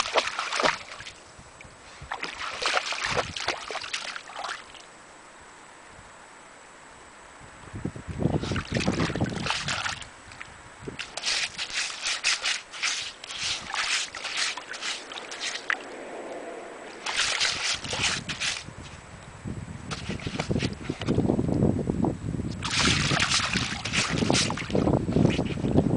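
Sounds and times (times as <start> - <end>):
dog digging in shallow water: 0.0 - 1.2, 2.0 - 4.9, 8.3 - 10.1, 10.9 - 16.1, 16.9 - 18.9, 19.9 - 21.2, 22.5 - 25.7.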